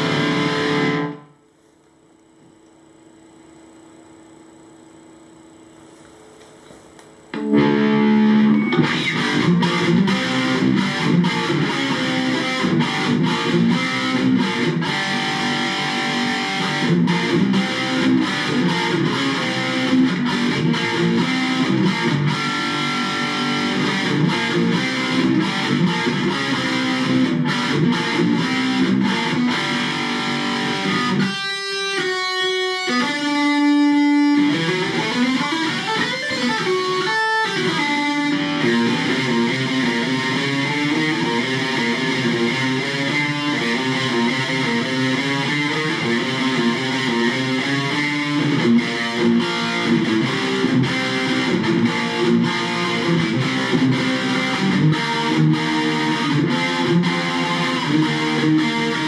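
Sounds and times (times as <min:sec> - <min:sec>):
distorted electric guitar riffing: 0:00.0 - 0:01.4, 0:07.3 - 0:59.0.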